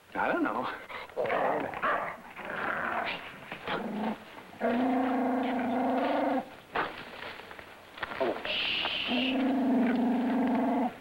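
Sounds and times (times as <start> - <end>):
dog growling and snarling: 1.2 - 6.5, 9.1 - 11.0.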